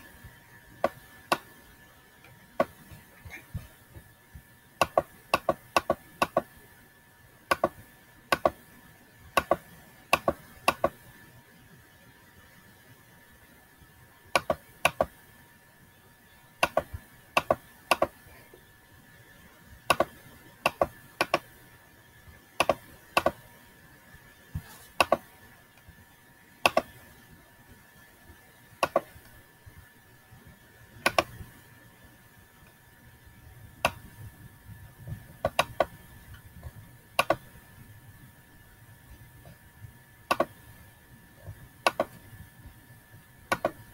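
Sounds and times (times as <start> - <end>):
faint high-pitched whine: 0.0 - 43.9
computer mouse clicking: 0.8 - 1.5, 2.2 - 2.9, 4.8 - 6.6, 7.5 - 8.6, 9.4 - 11.0, 14.4 - 15.2, 16.6 - 18.2, 19.9 - 21.5, 22.6 - 23.4, 24.9 - 25.9, 26.6 - 27.0, 28.8 - 29.4, 31.0 - 31.6, 33.8 - 34.3, 35.1 - 37.5, 40.3 - 40.7, 41.5 - 42.3, 43.5 - 43.9.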